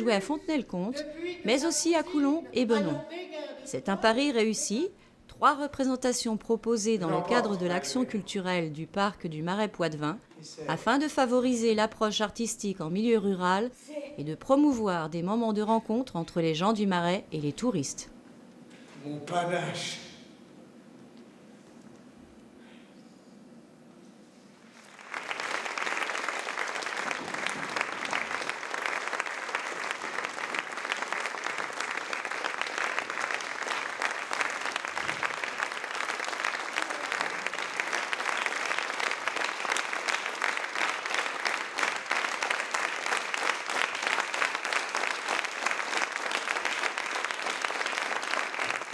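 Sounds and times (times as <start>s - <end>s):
audience applauding: 24.7s - 48.9s.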